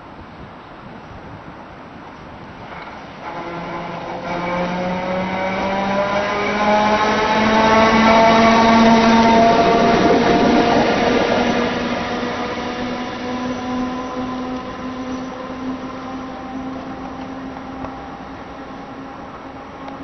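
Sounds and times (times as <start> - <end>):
tram running noise: 0.0 - 20.0
steady hum: 7.0 - 19.8.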